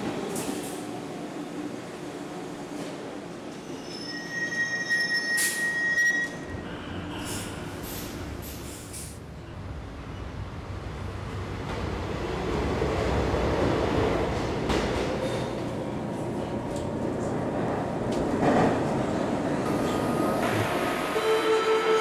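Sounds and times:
train rumbling: 6.3 - 22.0.

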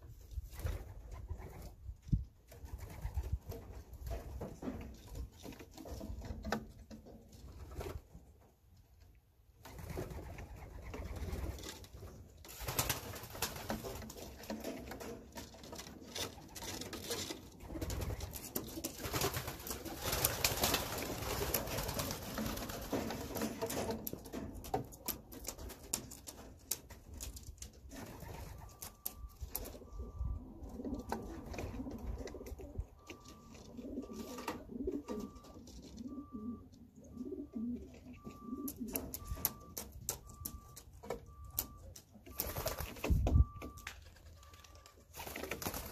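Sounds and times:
birds scuffling and clicking: 0.4 - 45.9
pigeons cooing: 27.9 - 39.8.

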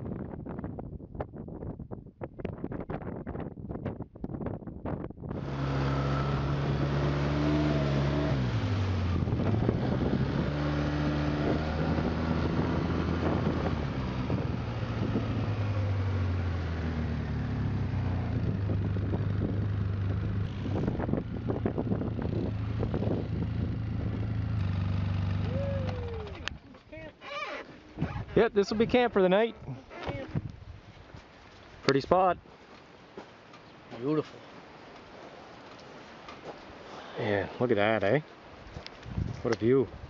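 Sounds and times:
wind buffeting microphone: 0.0 - 26.7, 28.0 - 31.2, 38.6 - 40.0
atv engine running: 5.3 - 26.6.

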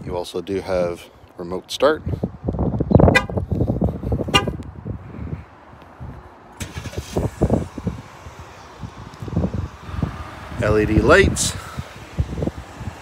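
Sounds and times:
car horn chirps: 3.0 - 3.4, 4.3 - 4.6.

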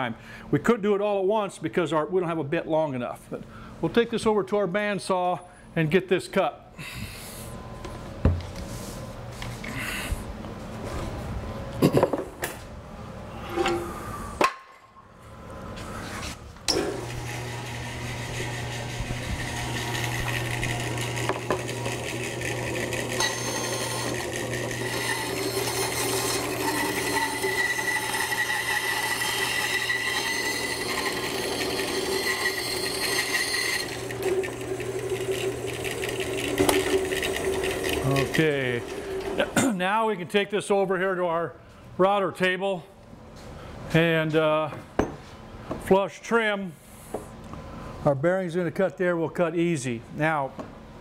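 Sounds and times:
bandsaw cutting wood: 16.8 - 39.5.

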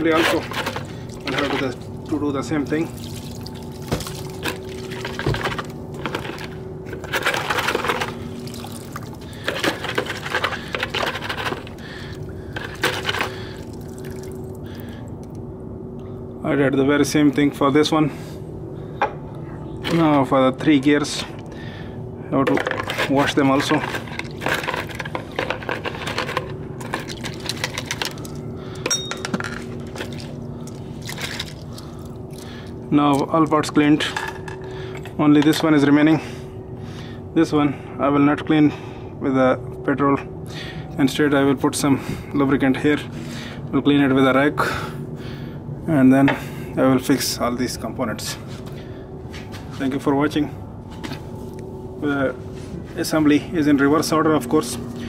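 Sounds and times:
solvent sloshing and splashing: 0.0 - 15.3, 23.0 - 28.4, 29.7 - 33.6
faint steady hum: 0.0 - 55.0.

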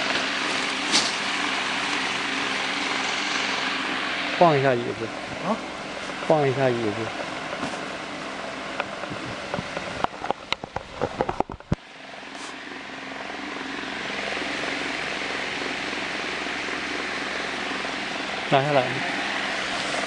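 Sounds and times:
steady rushing noise: 0.0 - 11.8.

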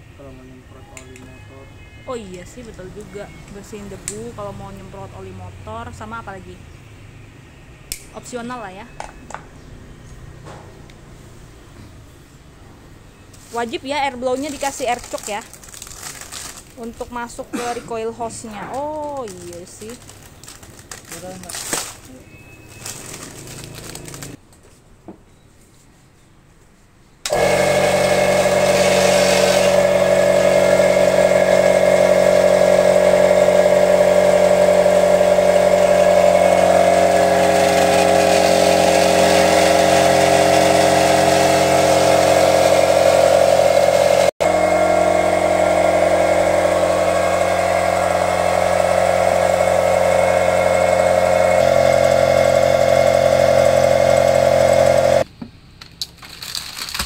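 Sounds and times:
electric air compressor running: 27.3 - 55.3.

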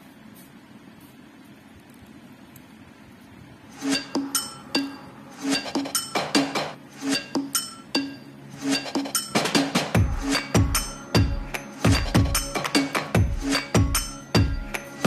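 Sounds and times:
chime-like melody: 4.0 - 5.2, 10.0 - 15.0.

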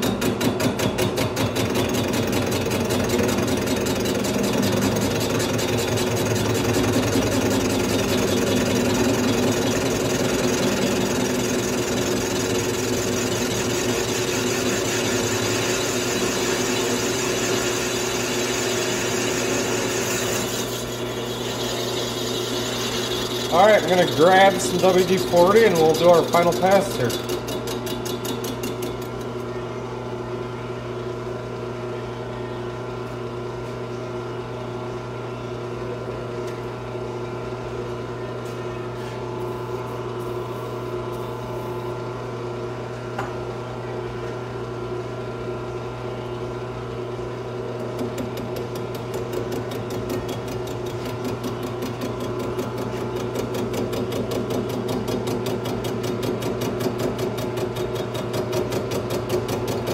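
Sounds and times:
metal lathe humming: 3.8 - 28.8.

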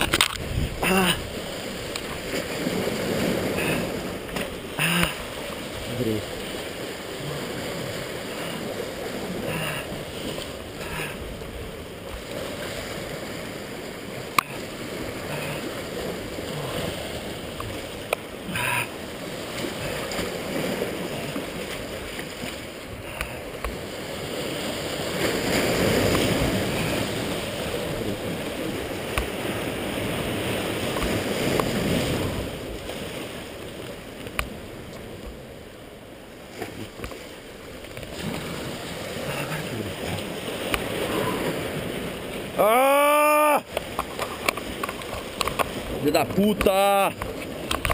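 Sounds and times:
wind on microphone: 0.0 - 4.2
sea surf against rocks: 0.0 - 47.9.

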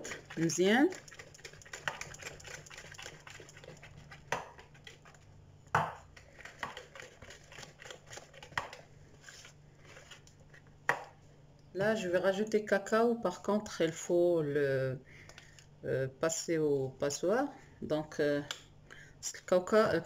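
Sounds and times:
whisk knocking against bowl: 0.0 - 4.9, 6.4 - 8.8
whisk beating batter in a bowl: 0.0 - 5.3, 6.1 - 9.6.

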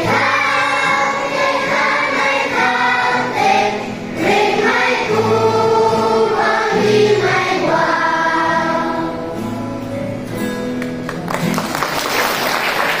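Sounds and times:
children's choir singing a hymn: 0.0 - 9.8
acoustic guitar: 0.0 - 13.0.

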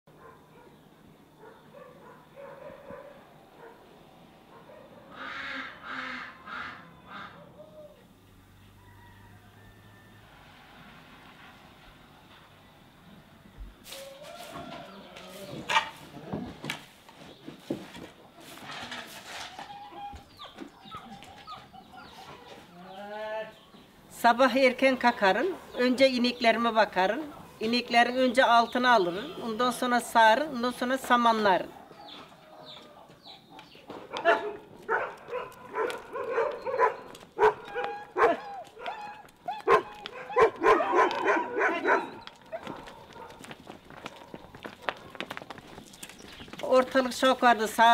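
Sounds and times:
dog barking: 0.1 - 0.8, 1.4 - 3.8, 4.5 - 5.1, 34.1 - 45.0
broom scraping the ground: 13.8 - 19.8
chickens clucking: 14.0 - 17.4.

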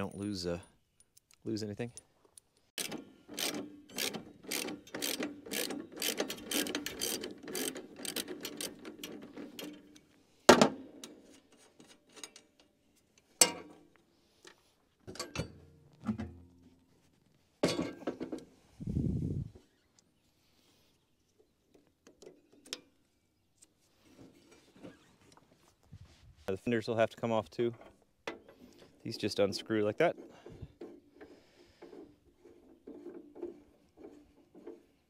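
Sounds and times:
metal parts knocking and clunking: 1.9 - 12.8, 15.0 - 16.4, 17.6 - 18.4
ratchet wrench clicking: 2.8 - 9.1.

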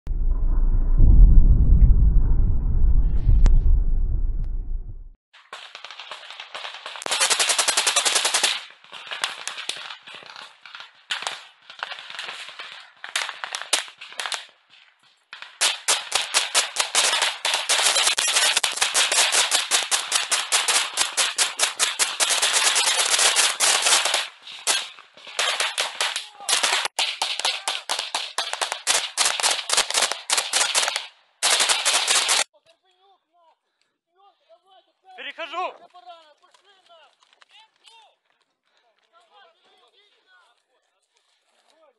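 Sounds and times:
automatic gunfire: 5.5 - 9.8, 15.6 - 32.4.

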